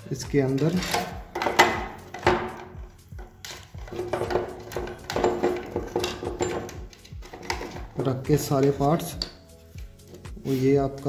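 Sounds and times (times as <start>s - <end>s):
clicks and knocks of connectors: 0.6s - 9.4s.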